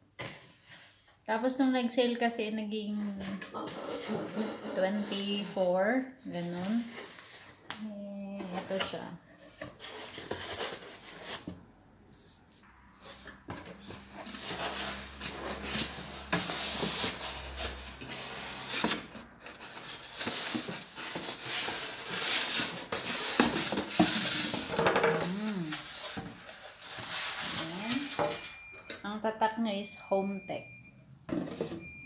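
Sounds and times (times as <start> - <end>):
cardboard rustling and scraping: 3.1 - 7.7, 8.3 - 28.5.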